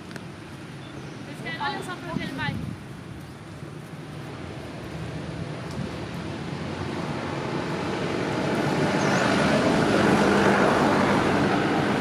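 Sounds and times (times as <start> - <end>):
vehicle passing: 4.0 - 12.0.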